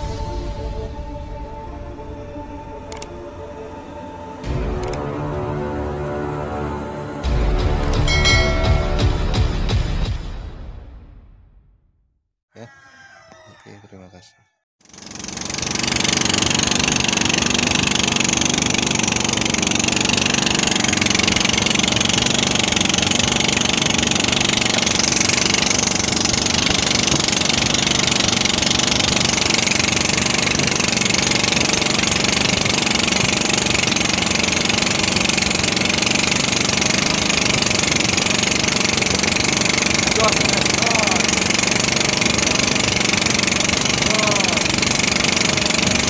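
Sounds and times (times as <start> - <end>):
boat engine running: 7.9 - 9.4, 14.8 - 46.0.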